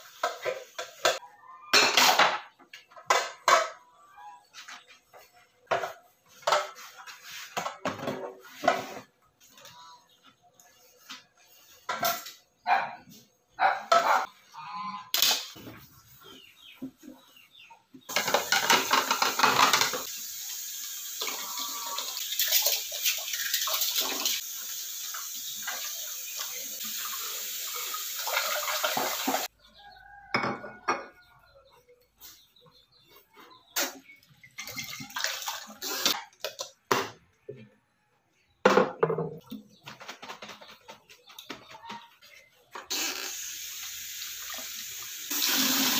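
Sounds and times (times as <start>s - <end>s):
tap water running: 18.1s - 29.5s, 34.6s - 36.6s, 42.9s - 45.9s
dishes clinking in a sink: 30.3s - 31.2s.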